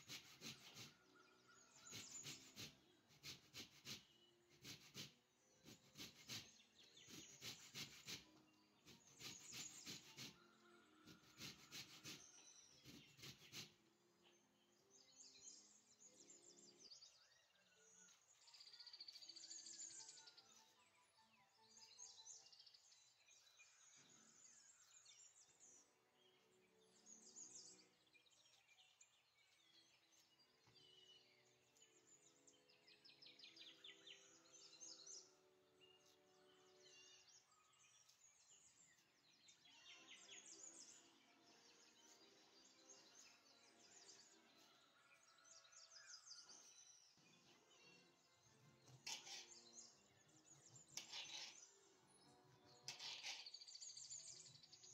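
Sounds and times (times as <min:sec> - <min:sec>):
faint bird chirping: 0:00.0 - 0:54.9
soft background music: 0:00.0 - 0:54.9
orange grated on metal grater: 0:49.0 - 0:49.6, 0:51.0 - 0:51.6, 0:52.9 - 0:53.7.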